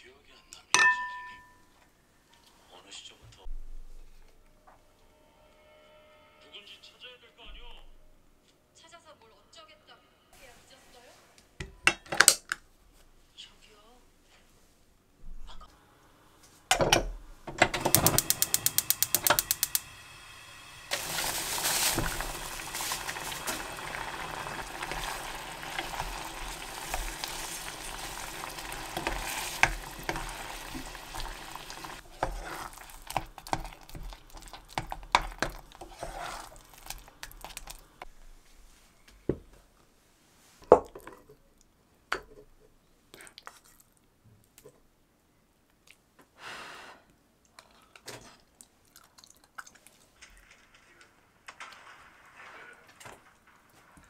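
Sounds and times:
spoon clinking and scraping: 0.8 - 1.6, 24.8 - 37.8
gas igniter clicking: 17.5 - 19.9
rice sizzling in pot: 17.6 - 38.1
wooden spoon stirring: 20.9 - 38.4.

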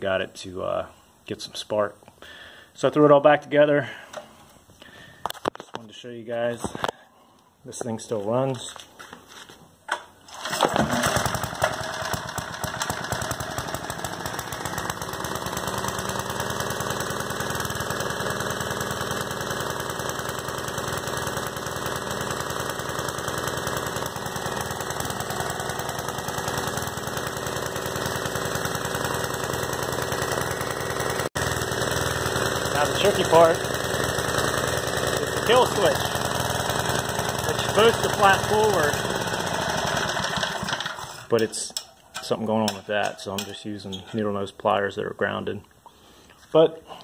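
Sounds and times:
generator engine running: 10.3 - 44.1.

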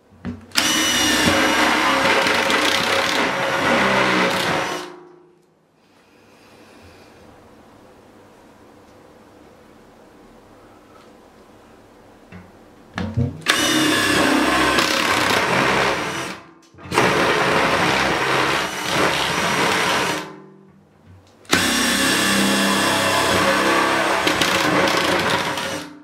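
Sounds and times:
electric drill boring plastic: 0.6 - 4.9, 13.5 - 20.3, 21.5 - 25.9.

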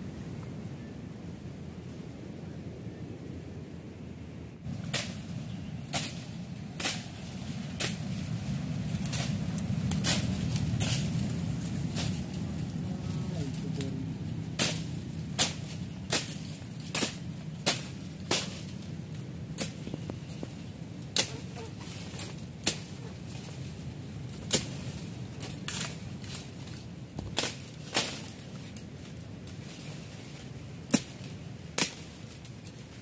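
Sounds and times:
low rumble: 0.0 - 33.0
leaves and stems snapping: 4.7 - 33.0.

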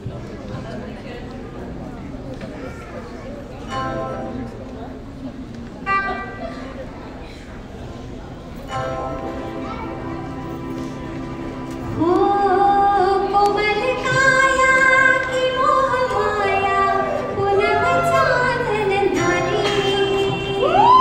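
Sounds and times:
live band accompaniment: 8.7 - 21.0
woman singing into microphone: 11.9 - 21.0.

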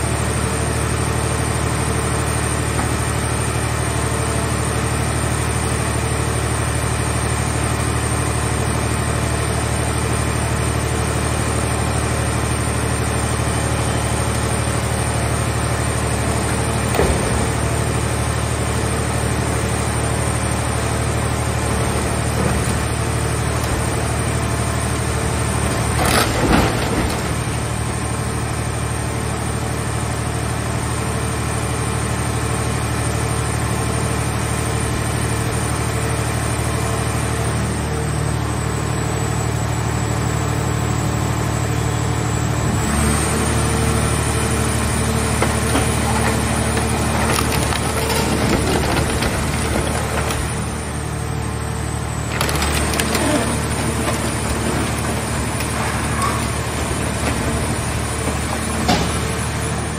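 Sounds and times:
hydraulic power unit droning: 0.0 - 59.9
car body crunching: 21.3 - 28.1, 44.7 - 51.1, 52.2 - 59.9.

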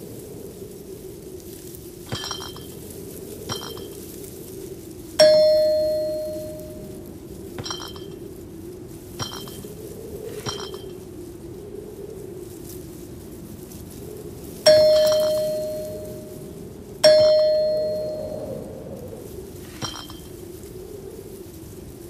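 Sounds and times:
low background hum: 1.8 - 22.0
short metallic clinks: 2.1 - 2.8, 3.5 - 4.0, 5.2 - 6.9, 7.6 - 8.3, 9.2 - 9.7, 10.3 - 11.0, 14.7 - 16.4, 17.0 - 18.5, 19.7 - 20.4
bell ding: 5.2 - 6.9, 7.6 - 8.2, 14.7 - 16.4, 17.0 - 18.6, 19.8 - 20.3.

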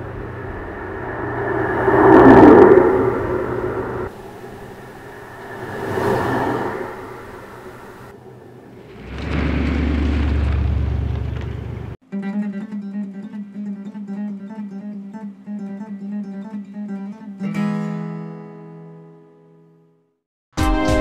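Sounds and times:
loud low rumble: 0.0 - 12.0
acoustic guitar music: 12.0 - 20.0.

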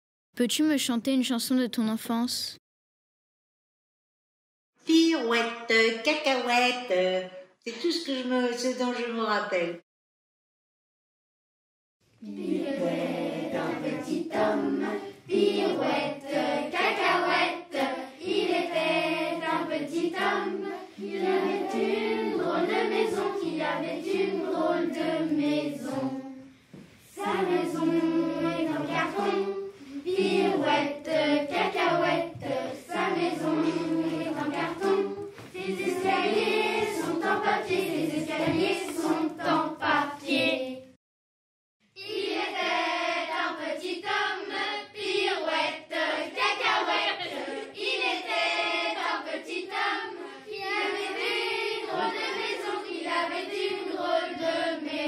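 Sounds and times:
children singing: 12.2 - 26.5, 27.1 - 40.9, 42.0 - 55.0.

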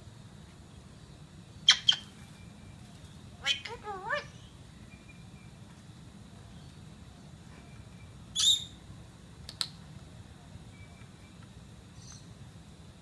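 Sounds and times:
parrot squawk: 1.7 - 2.1, 3.4 - 4.4.

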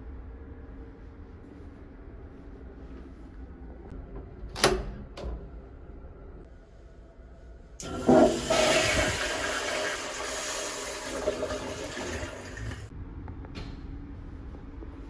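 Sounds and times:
toilet flushing: 7.8 - 12.9.

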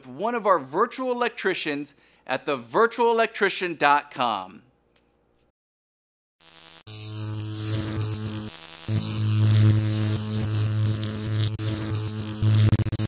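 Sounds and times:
electric buzzing hum with crackle: 6.4 - 13.0.

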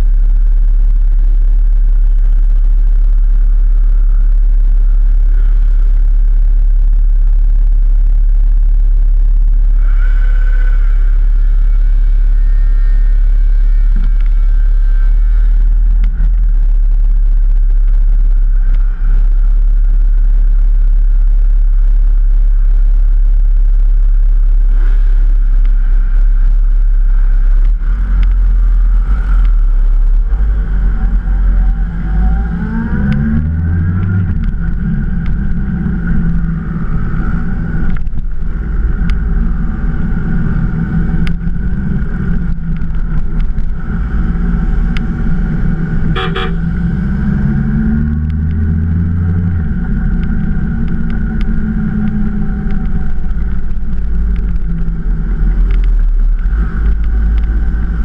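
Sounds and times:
motorcycle engines rumbling: 0.0 - 58.0
motorcycle horn toot: 46.1 - 46.6.

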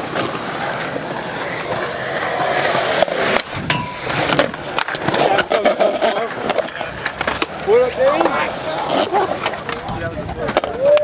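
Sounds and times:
skateboard grinding on concrete ledge: 0.0 - 11.0
skateboard wheels rolling on concrete: 0.0 - 11.0
skateboard clacking on ledge: 2.5 - 11.0.

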